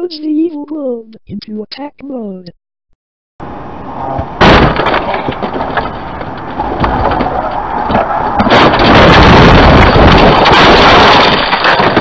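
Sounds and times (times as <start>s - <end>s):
cartoon brawl din with crashes: 4.4s - 5.5s, 8.4s - 12.0s.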